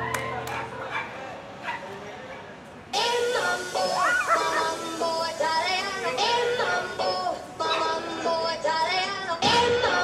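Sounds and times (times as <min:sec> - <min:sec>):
dance music with sung vocals: 0:02.9 - 0:10.0.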